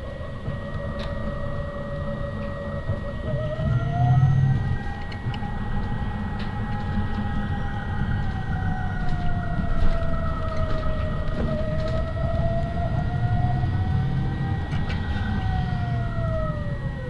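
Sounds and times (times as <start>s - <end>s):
bus engine rumble: 0.0s - 17.0s
drivetrain whine: 0.0s - 17.0s.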